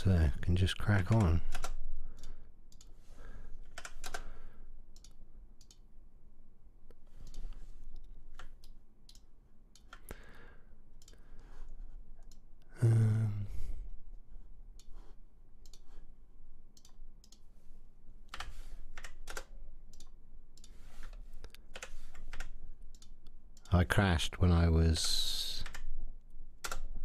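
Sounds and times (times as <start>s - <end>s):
computer mouse clicks: 1.0s - 3.0s, 3.6s - 5.8s, 6.8s - 10.2s, 11.0s - 12.5s, 14.7s - 16.1s, 16.7s - 17.6s, 18.2s - 23.8s, 25.0s - 25.9s, 26.6s - 27.0s.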